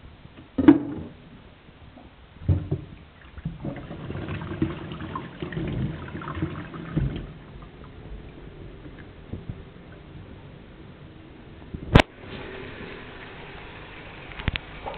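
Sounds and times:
water splashing in metal sink: 0:03.2 - 0:10.1.

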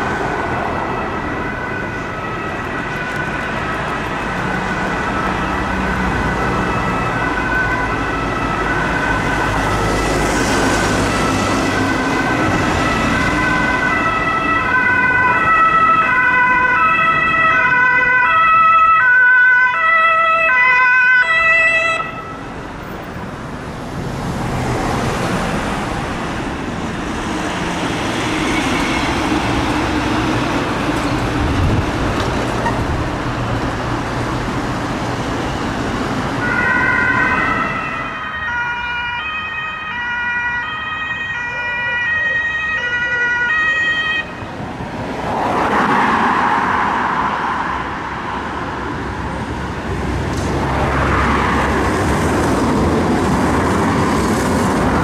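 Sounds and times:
city traffic noise: 0:00.0 - 0:55.0
ambulance siren stepped tones: 0:36.4 - 0:44.4.

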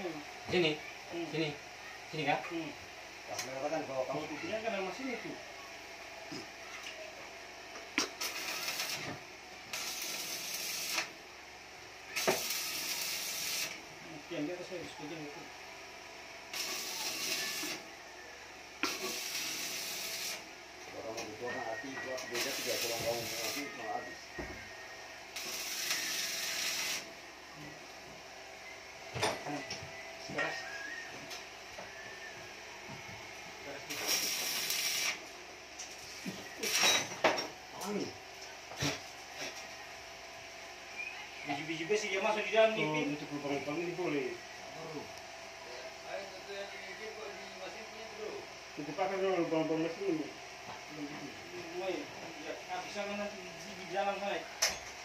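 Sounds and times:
arc welder crackling and hissing: 0:00.0 - 0:28.3, 0:30.3 - 0:55.0
welding arc crackling hiss: 0:07.7 - 0:11.3, 0:12.0 - 0:14.0, 0:16.5 - 0:17.9, 0:18.8 - 0:20.6, 0:22.1 - 0:23.9, 0:25.3 - 0:27.2, 0:33.7 - 0:37.1.

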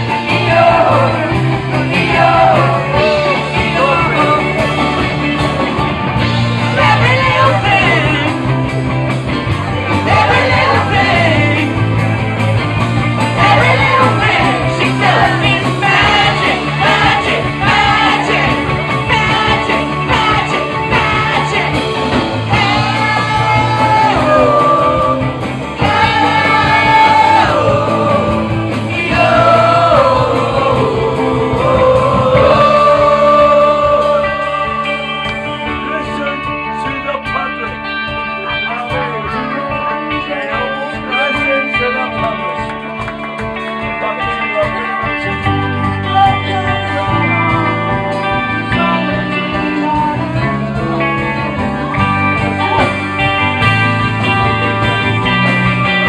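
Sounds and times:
person singing: 0:00.0 - 0:05.8, 0:06.6 - 0:08.6, 0:13.3 - 0:36.4, 0:44.8 - 0:51.6
bass: 0:00.0 - 0:56.0
drums: 0:00.0 - 0:56.0
guitar: 0:00.0 - 0:56.0.

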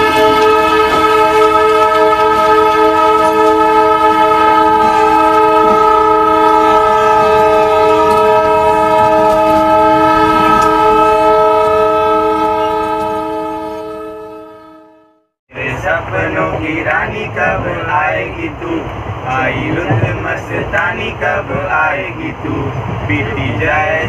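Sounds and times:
train horn blast: 0:00.0 - 0:15.4
moving train rumble: 0:00.0 - 0:24.0.

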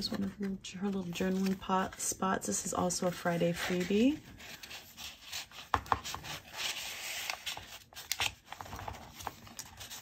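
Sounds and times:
paper rustling and sliding: 0:03.2 - 0:10.0.

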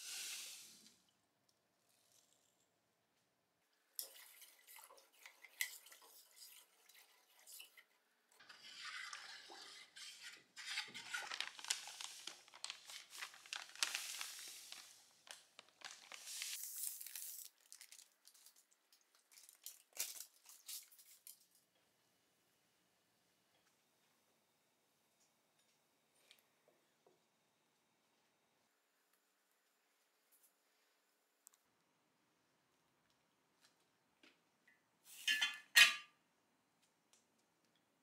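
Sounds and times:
granules pouring with hiss: 0:00.0 - 0:01.0, 0:11.3 - 0:18.1.

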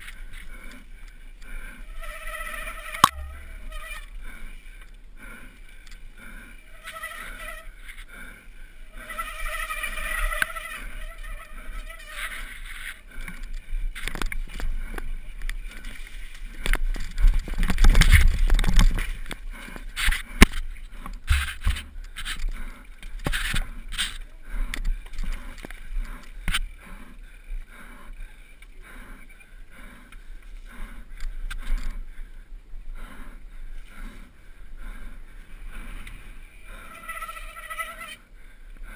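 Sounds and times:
wind rumble on microphone: 0:13.7 - 0:19.4.

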